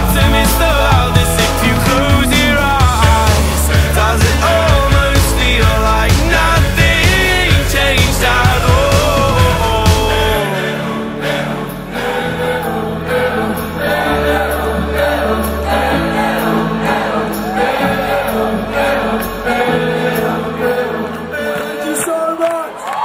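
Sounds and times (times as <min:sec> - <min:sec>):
held bass notes: 0:00.0 - 0:10.5
choir-like singing voices: 0:00.0 - 0:23.0.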